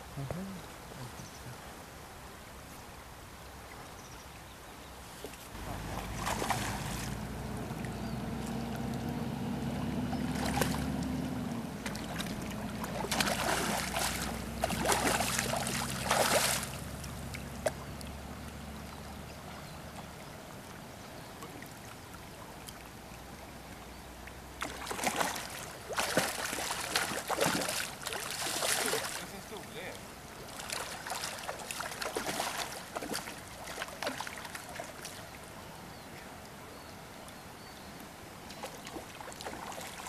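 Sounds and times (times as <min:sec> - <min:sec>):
river rushing: 0:05.5 - 0:20.8, 0:24.5 - 0:35.4
low steady hum: 0:05.5 - 0:29.2
fish splashing at the surface: 0:05.6 - 0:09.0, 0:09.6 - 0:17.8, 0:24.6 - 0:29.4, 0:30.4 - 0:35.2, 0:38.6 - 0:40.0.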